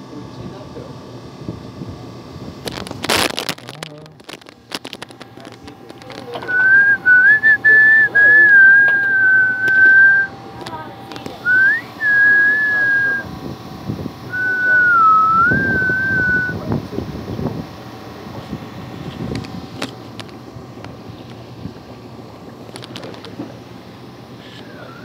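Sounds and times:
man whistling: 6.4s - 10.3s, 11.4s - 13.3s, 14.3s - 16.6s, 24.7s - 25.0s.

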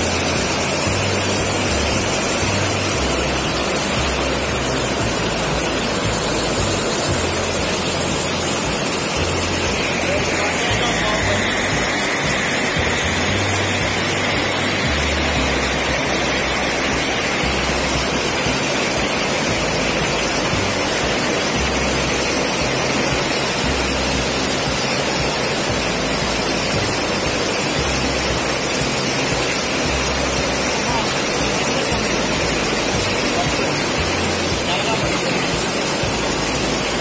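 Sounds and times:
water rushing over weir: 0.0s - 37.0s.

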